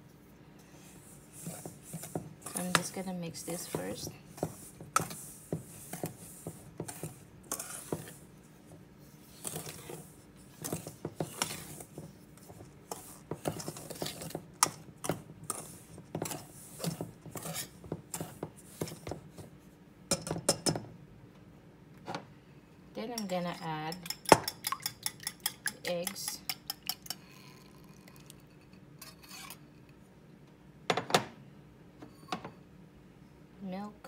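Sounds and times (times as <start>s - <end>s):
whisk scraping in metal bowl: 1.0s - 19.2s, 29.0s - 29.6s.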